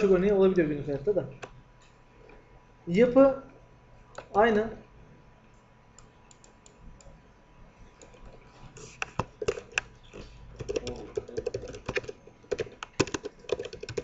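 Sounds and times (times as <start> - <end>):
keyboard typing: 6.0 - 7.1, 7.9 - 14.0.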